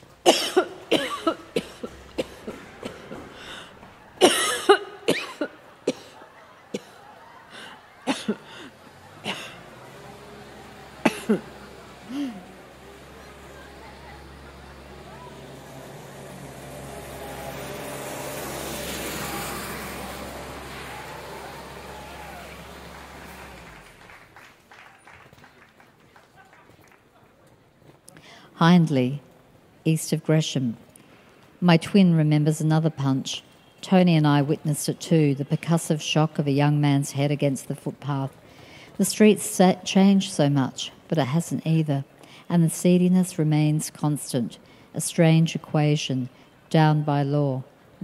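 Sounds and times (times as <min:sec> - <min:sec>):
person coughing: 0:00.2 - 0:03.4, 0:04.2 - 0:06.2, 0:08.1 - 0:08.4, 0:11.1 - 0:11.4
vehicle passing by: 0:00.7 - 0:25.4.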